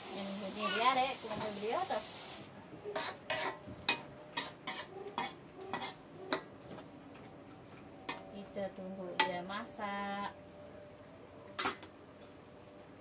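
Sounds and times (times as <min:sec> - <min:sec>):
metal spatula scraping wok: 0:03.0 - 0:06.0.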